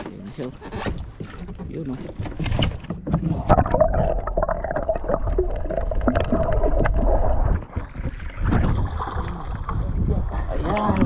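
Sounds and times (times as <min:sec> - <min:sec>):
water splashing: 0:00.1 - 0:11.0
muffled underwater gurgling: 0:03.2 - 0:11.0
wind noise: 0:06.1 - 0:11.0.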